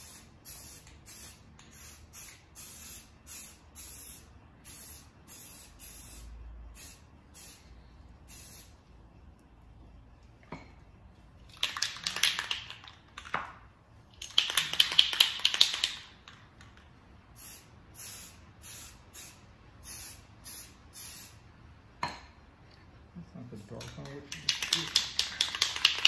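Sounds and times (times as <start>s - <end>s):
aerosol spray can hissing: 0.0s - 7.7s, 8.3s - 8.8s, 17.4s - 21.4s.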